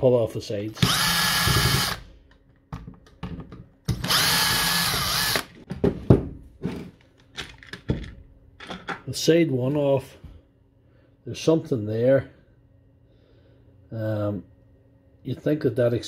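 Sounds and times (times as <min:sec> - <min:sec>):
cordless drill whining: 0:00.8 - 0:02.0, 0:04.0 - 0:05.6.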